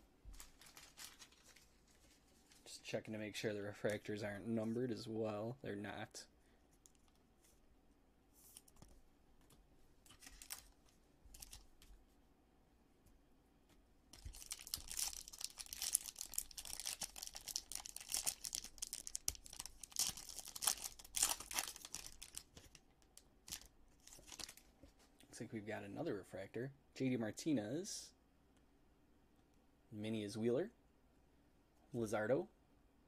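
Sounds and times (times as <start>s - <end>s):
foil wrapper tearing and crinkling: 0.4s - 2.2s, 14.2s - 22.7s.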